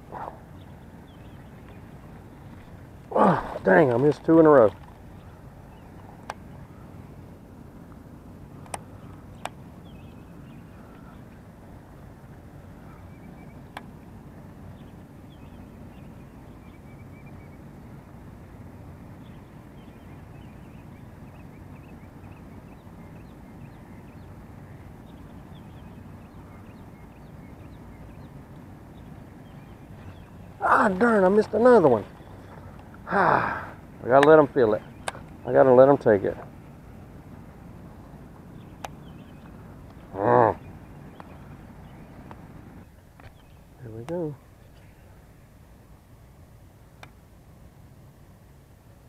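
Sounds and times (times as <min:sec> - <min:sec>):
low background rumble: 0:00.0 - 0:49.0
faint bird chirps: 0:19.2 - 0:36.2.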